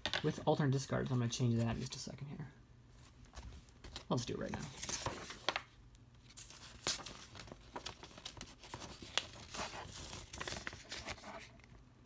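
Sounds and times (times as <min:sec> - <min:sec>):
paper rustling and crackling: 0:03.0 - 0:11.8.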